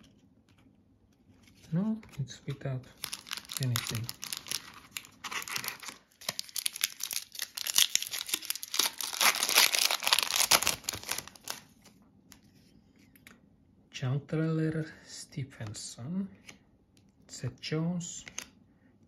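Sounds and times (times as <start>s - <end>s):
foil pack tearing and crinkling: 3.0s - 11.6s.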